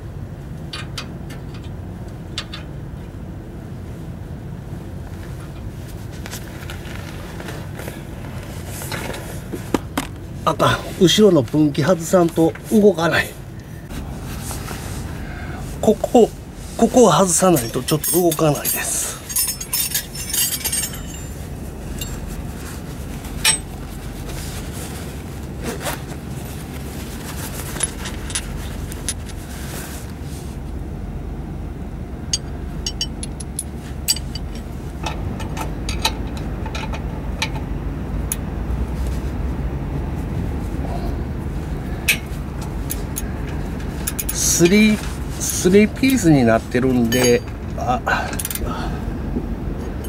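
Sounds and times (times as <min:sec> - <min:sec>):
steady low rumble: 0:00.0 - 0:50.0
metal tools clinking on bolts: 0:17.1 - 0:22.3, 0:23.4 - 0:23.7, 0:32.3 - 0:37.6, 0:44.0 - 0:46.3, 0:46.9 - 0:48.7.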